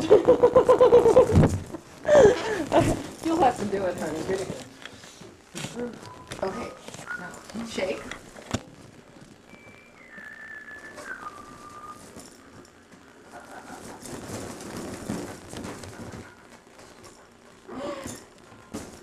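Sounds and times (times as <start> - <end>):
rubber balloons rubbing and knocking: 0.0 - 7.1, 8.3 - 17.4
whistle-like descending tone: 9.5 - 12.2.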